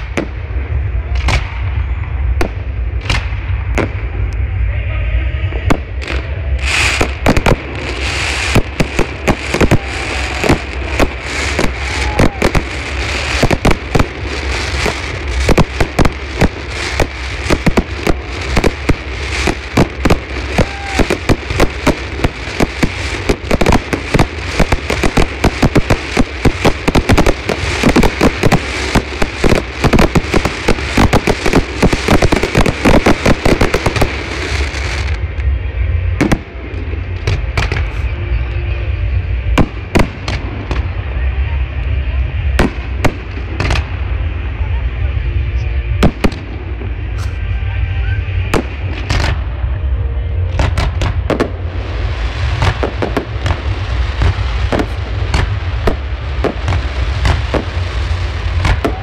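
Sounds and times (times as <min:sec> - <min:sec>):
fireworks banging and crackling: 0:00.0 - 0:04.7, 0:05.4 - 0:59.0.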